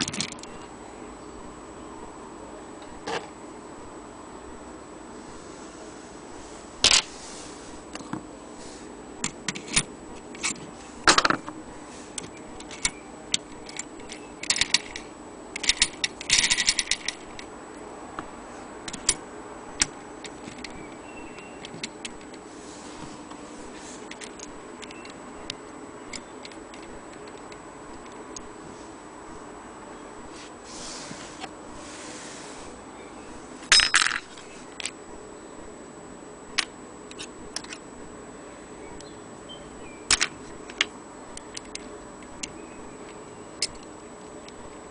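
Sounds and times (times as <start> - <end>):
clock parts clicking and clinking: 9.2 - 11.5, 12.2 - 17.5, 18.9 - 19.2, 24.0 - 28.5, 33.7 - 34.9, 36.6 - 37.8, 40.1 - 44.6.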